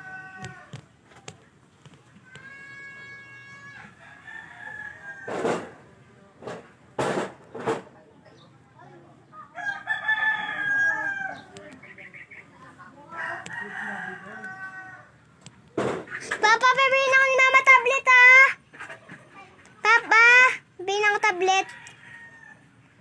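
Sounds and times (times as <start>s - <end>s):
rooster crowing: 0.0s - 0.8s, 3.4s - 5.4s, 9.5s - 11.6s, 13.1s - 15.2s, 21.6s - 22.7s
sharp knocks: 5.3s - 5.8s, 6.4s - 7.9s, 15.8s - 16.4s.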